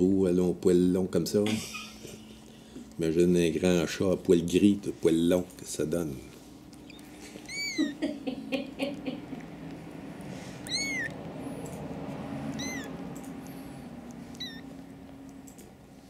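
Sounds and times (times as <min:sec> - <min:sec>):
kitten mewing: 0:06.8 - 0:08.2, 0:08.9 - 0:11.3, 0:12.4 - 0:14.9.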